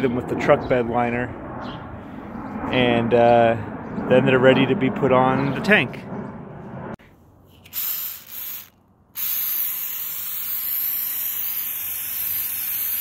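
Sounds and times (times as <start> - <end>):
aerosol can spraying: 7.6 - 13.0.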